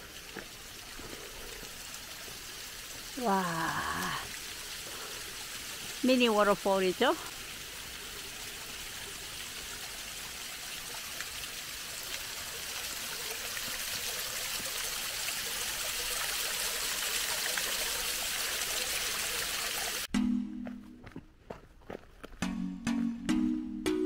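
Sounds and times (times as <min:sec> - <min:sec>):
waterfall splashing: 0:00.0 - 0:20.1
music: 0:20.1 - 0:21.2, 0:22.4 - 0:24.0.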